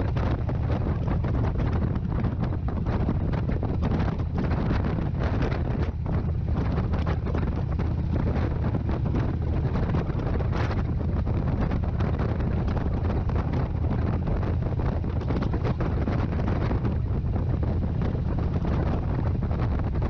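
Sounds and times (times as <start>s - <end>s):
motorcycle engine rumbling: 0.0s - 20.0s
wind buffeting microphone: 0.0s - 20.0s.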